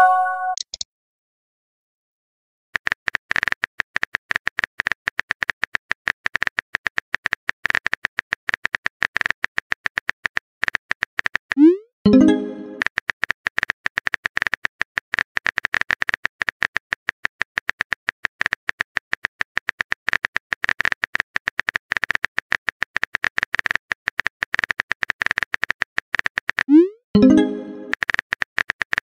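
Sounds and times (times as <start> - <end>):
phone keyboard typing clicks: 0.5 - 0.8.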